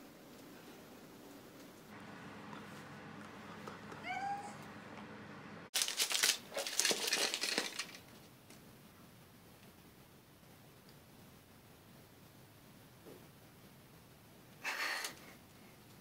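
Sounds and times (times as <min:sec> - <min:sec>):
rising meow-like squeal: 0:04.0 - 0:04.6
paper packaging rustling: 0:05.8 - 0:08.2.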